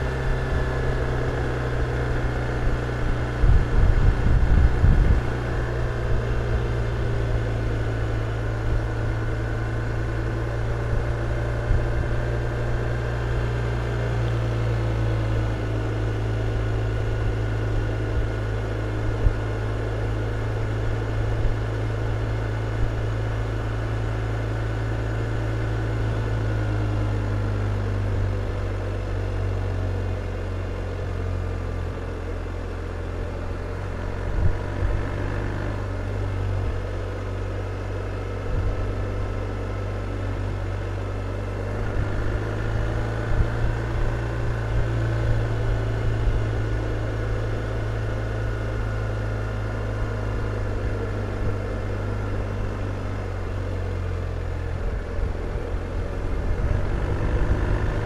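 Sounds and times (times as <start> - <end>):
motorcycle engine cruising: 0.0 - 58.0.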